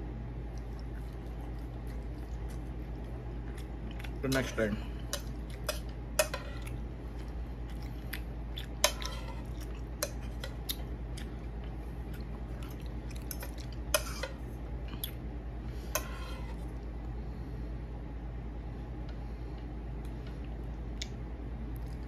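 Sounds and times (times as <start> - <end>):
steady low hum: 0.0 - 22.0
fork clinking against plate: 8.8 - 9.4.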